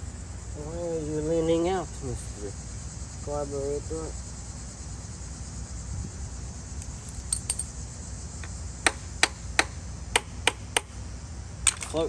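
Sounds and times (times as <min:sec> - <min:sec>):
wrench tapping metal: 0:07.1 - 0:07.6.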